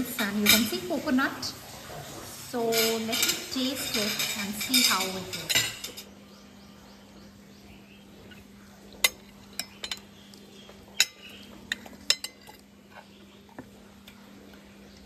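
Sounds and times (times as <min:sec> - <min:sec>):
metal spoon clinking on plate: 0:02.7 - 0:06.1, 0:09.0 - 0:10.1, 0:11.0 - 0:12.7.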